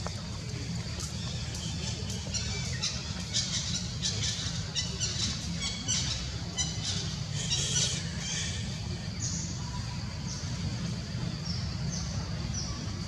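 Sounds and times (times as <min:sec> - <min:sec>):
steady low rumble: 0:00.0 - 0:13.0.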